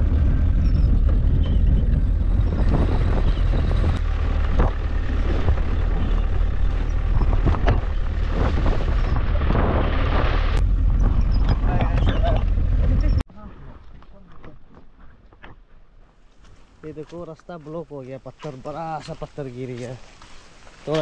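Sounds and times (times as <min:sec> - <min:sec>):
wind buffeting microphone: 0:00.0 - 0:13.2
vehicle rumbling on dirt track: 0:00.0 - 0:15.6
vehicle knocks and rattles: 0:00.3 - 0:09.5.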